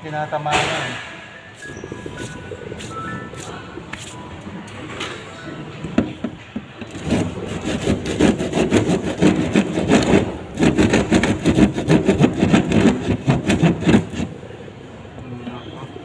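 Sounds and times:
hand saw cutting board: 6.9s - 14.3s.

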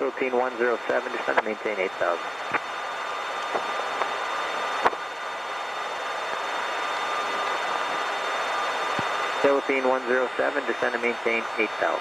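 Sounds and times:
aircraft cockpit rushing noise: 0.0s - 12.0s
faint whine: 0.0s - 12.0s.

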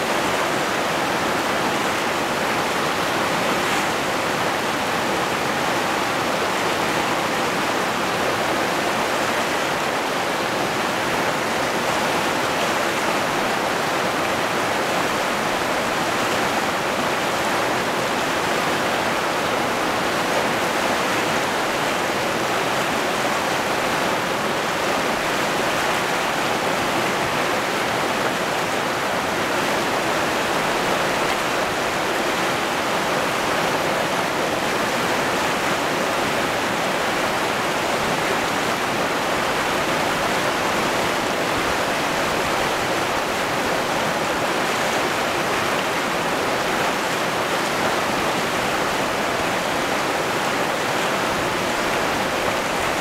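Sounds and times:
river rapids rushing: 0.0s - 53.0s.

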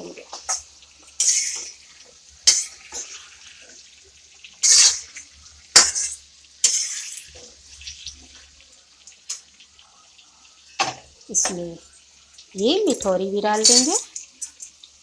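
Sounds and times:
potatoes frying in oil: 0.0s - 15.0s
metal spatula scraping a pan: 0.3s - 3.8s, 4.5s - 8.4s.

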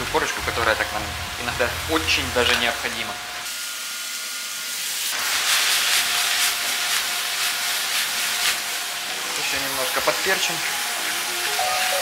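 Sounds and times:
food sizzling in a frying pan: 0.2s - 12.0s.

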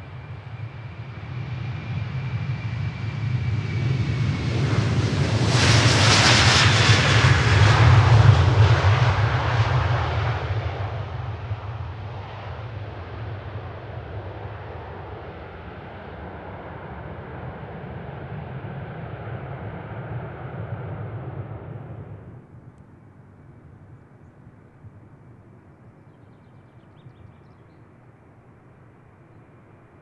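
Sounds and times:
jet engines roaring: 0.0s - 22.6s.

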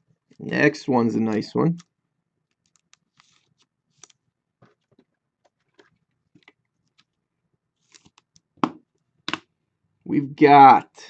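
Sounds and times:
cards clicking and sliding: 2.5s - 7.1s, 7.8s - 8.4s.

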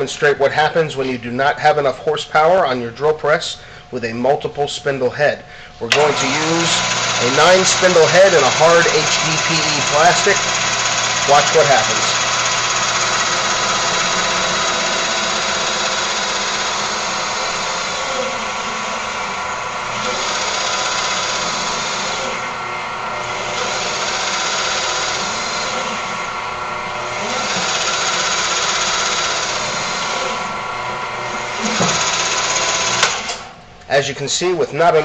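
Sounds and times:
drill press drilling plastic: 5.9s - 33.6s.

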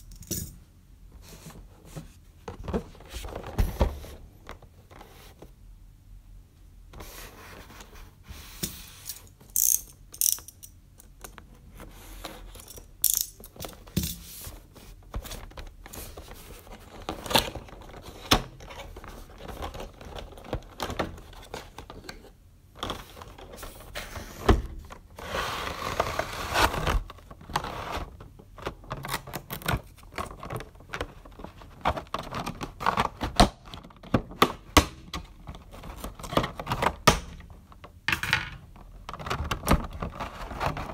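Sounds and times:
sliding and rubbing: 25.1s - 28.2s.

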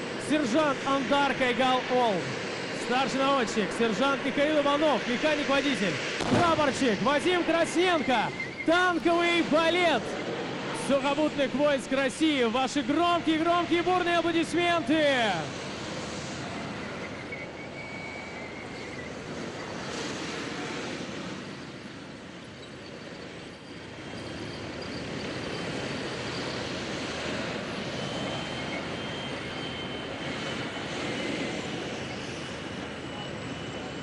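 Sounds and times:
high turbine whine: 0.0s - 34.0s
tank engine rumble: 15.5s - 34.0s.

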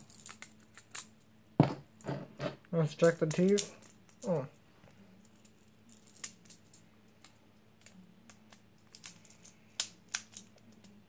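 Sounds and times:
plastic parts clicking: 5.9s - 11.0s.

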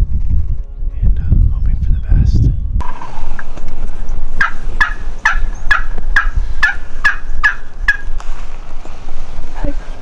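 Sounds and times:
turkey hen yelps: 4.4s - 8.1s.

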